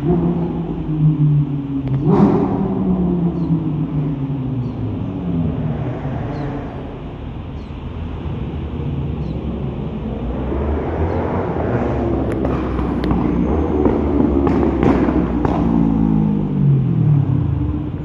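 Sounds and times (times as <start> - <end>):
car passing: 0.0 - 18.0
low road rumble: 0.0 - 18.0.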